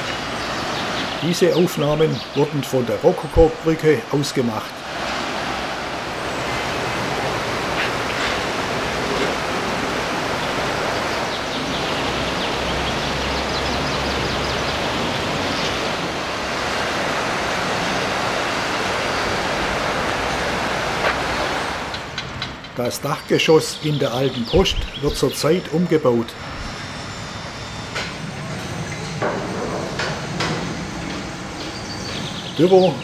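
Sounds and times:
river rushing over rocks: 0.0s - 22.7s.

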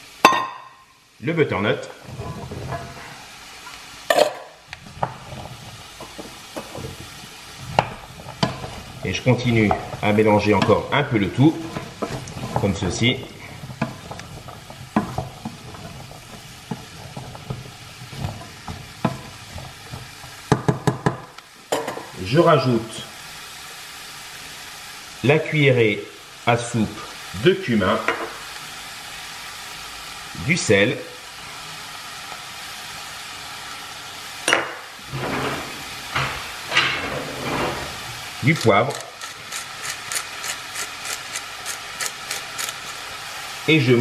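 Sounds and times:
butter and onion sizzling: 0.0s - 44.0s
vegetables knocking against a pan: 4.1s - 22.1s
scraping handling sounds: 35.1s - 40.0s.

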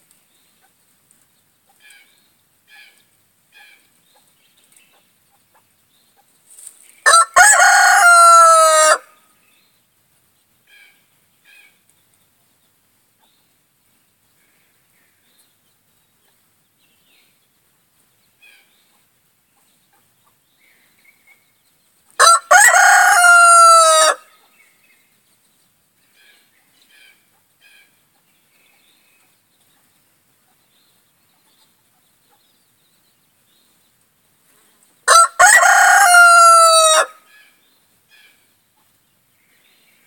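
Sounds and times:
rooster crowing: 7.1s - 9.2s, 22.2s - 24.3s, 35.1s - 37.2s.

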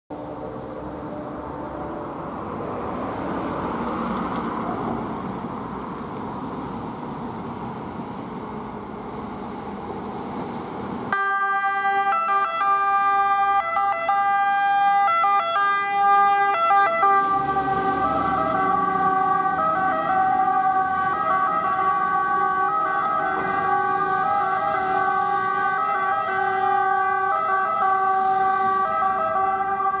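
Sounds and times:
diesel truck engine: 0.1s - 30.0s
road noise: 0.1s - 30.0s
two-tone siren: 11.1s - 30.0s.

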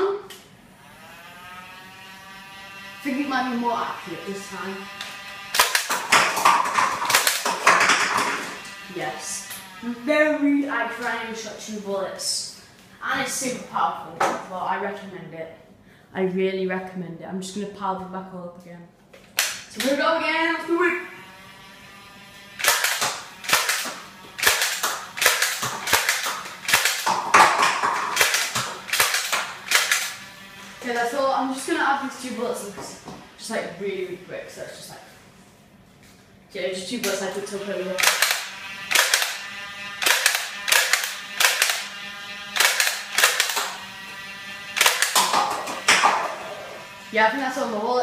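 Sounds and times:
toy dart blaster snapping: 4.9s - 8.9s, 19.2s - 20.1s, 21.6s - 31.2s, 37.0s - 47.1s
darts knocking plastic cups: 5.5s - 8.7s, 22.6s - 30.2s, 44.8s - 46.6s.

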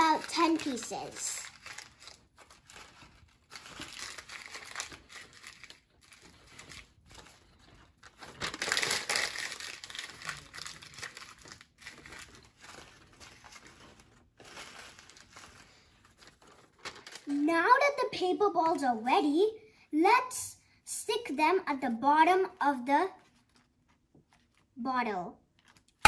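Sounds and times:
newspaper crumpling: 0.0s - 17.5s, 22.4s - 24.8s, 25.4s - 26.0s.

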